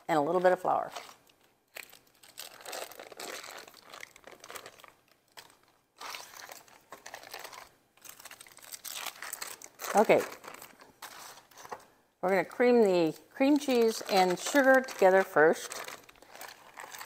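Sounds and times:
foil wrapper crinkling: 0.3 - 11.9, 13.4 - 17.0.

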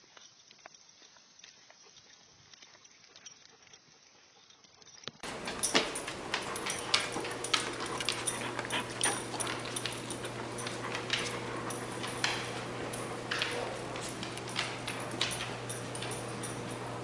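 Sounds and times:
dog claws clicking on wooden floor: 5.2 - 17.0
steady low hum: 5.2 - 17.0.

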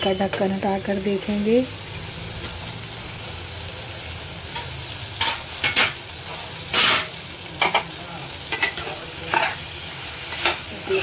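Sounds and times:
low steady sizzle: 0.0 - 11.0
metal spoon scraping a pan: 4.4 - 11.0.

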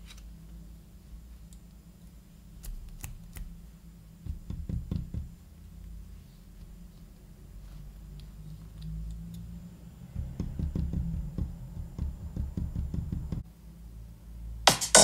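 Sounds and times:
music: 14.6 - 15.0.

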